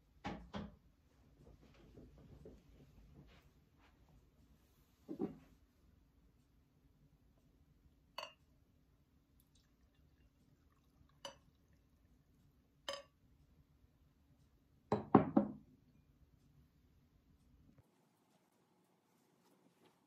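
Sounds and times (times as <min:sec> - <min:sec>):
glass clinking against ceramic mug: 0:08.2 - 0:08.4, 0:11.1 - 0:11.6, 0:12.9 - 0:13.2
coffee pouring: 0:09.4 - 0:13.0.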